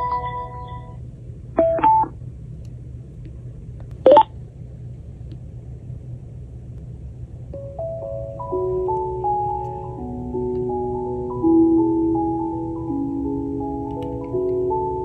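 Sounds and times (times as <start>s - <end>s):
low steady hum: 0.0s - 15.0s
start-up chime: 7.6s - 15.0s.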